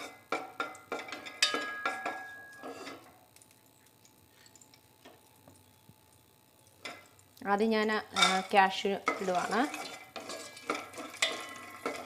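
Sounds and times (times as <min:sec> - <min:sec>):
wooden spatula knocking metal pot: 0:00.3 - 0:02.5.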